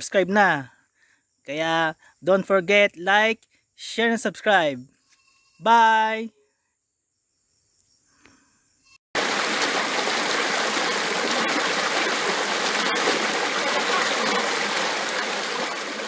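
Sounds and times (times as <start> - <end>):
stream rushing over rocks: 9.2 - 16.0.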